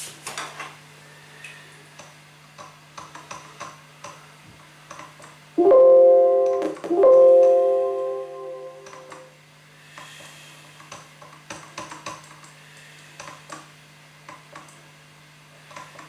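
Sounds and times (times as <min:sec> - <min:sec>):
electronic keyboard chord: 0:05.6 - 0:09.3.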